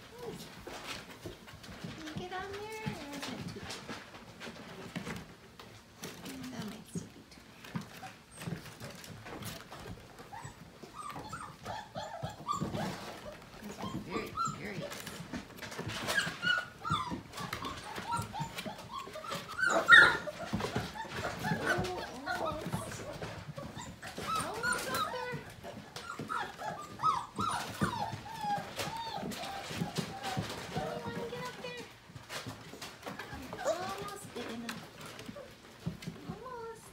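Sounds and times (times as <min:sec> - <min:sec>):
puppies yipping and whining: 0:07.6 - 0:36.9.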